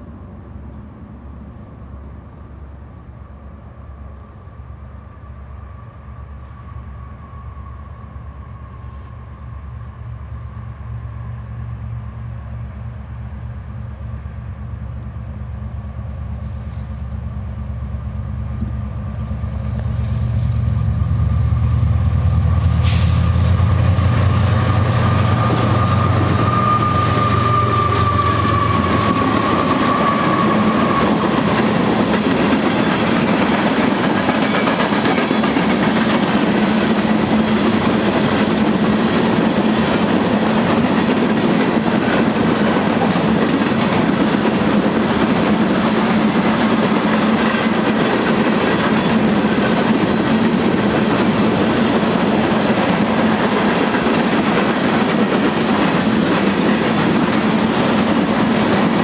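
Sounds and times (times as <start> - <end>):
high engine whine: 0.0 - 33.5
diesel locomotive engines humming: 0.0 - 59.0
train wheels clickety-clack: 18.6 - 59.0.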